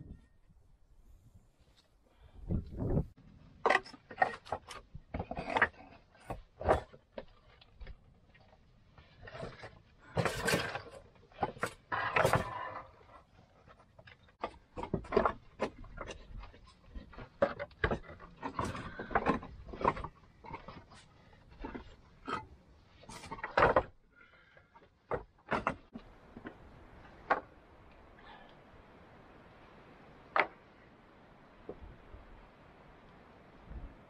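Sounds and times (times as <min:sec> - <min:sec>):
stones clacking and scraping: 0:02.7 - 0:28.0.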